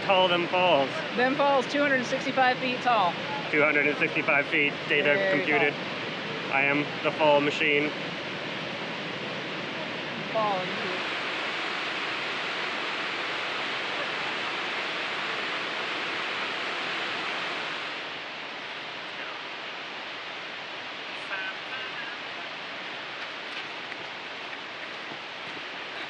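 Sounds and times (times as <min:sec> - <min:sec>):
waterfall roaring: 0:00.0 - 0:26.0.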